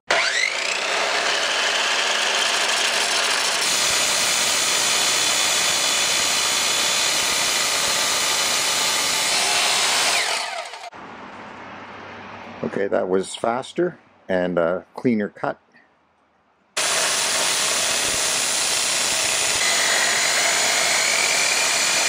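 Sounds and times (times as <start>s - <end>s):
abrasive saw grinding through steel: 0.1s - 10.9s, 16.8s - 22.0s
saw motor winding down: 0.1s - 10.9s, 16.8s - 22.0s.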